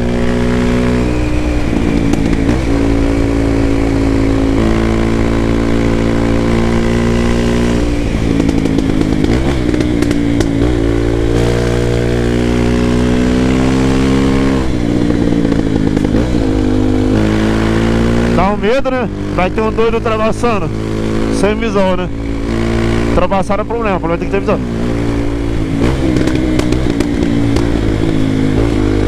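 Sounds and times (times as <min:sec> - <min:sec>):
motorcycle engine running: 0:00.0 - 0:29.0
exhaust crackles and pops: 0:01.9 - 0:02.9, 0:08.2 - 0:10.9, 0:25.6 - 0:28.8.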